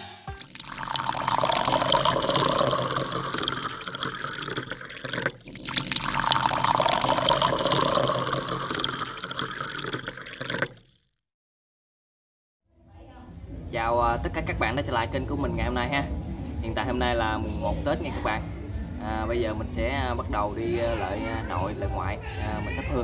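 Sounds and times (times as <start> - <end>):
rushing splashing water: 0.3 - 10.9.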